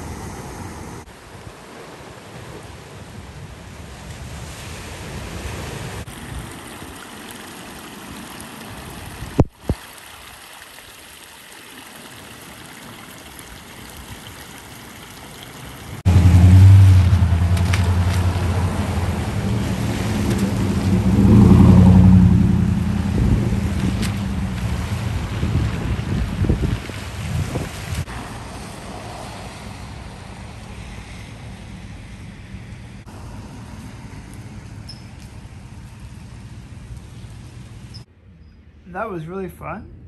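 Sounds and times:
surf washing onto beach: 0.0s - 10.4s, 11.7s - 36.6s
car engines passing on wet street: 15.0s - 38.0s
wind on microphone: 16.1s - 32.7s.

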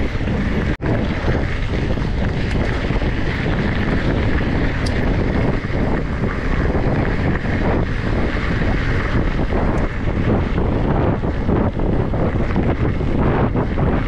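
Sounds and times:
bike rattling on gravel road: 0.0s - 14.0s
wind buffeting microphone: 0.0s - 14.0s.

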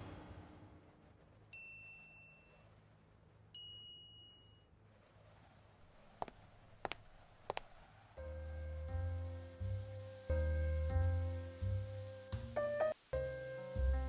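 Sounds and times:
high chime dings: 1.6s - 2.6s, 3.6s - 4.7s.

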